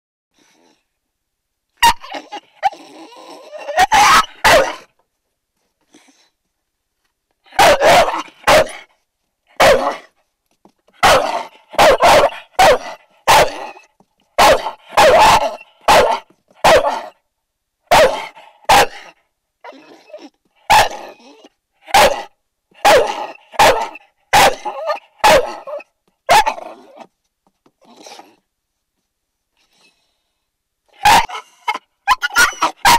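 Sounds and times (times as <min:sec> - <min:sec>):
dog barking: 0:01.8 - 0:02.8, 0:03.5 - 0:04.9, 0:07.5 - 0:08.9, 0:09.6 - 0:10.1, 0:11.0 - 0:13.8, 0:14.4 - 0:17.2, 0:17.9 - 0:19.2, 0:20.7 - 0:21.2, 0:21.9 - 0:27.0, 0:31.0 - 0:32.9.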